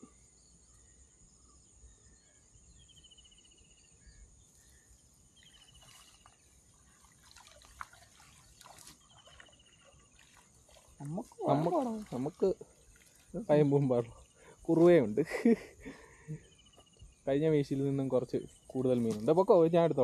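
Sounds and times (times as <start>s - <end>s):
water dripping and trickling: 5.3s - 15.3s, 16.4s - 20.0s
small splashes: 5.4s - 15.2s, 18.6s - 19.5s.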